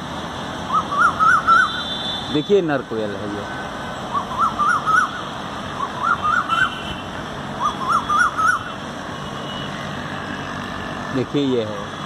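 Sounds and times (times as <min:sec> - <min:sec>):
koel calling: 0:04.1 - 0:06.8, 0:07.6 - 0:08.7.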